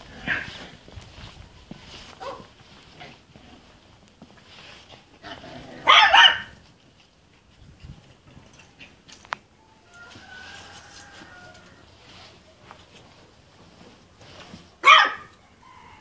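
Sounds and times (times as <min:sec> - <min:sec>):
puppies barking: 0:00.2 - 0:00.6, 0:02.2 - 0:02.6, 0:05.3 - 0:06.6, 0:14.8 - 0:15.4.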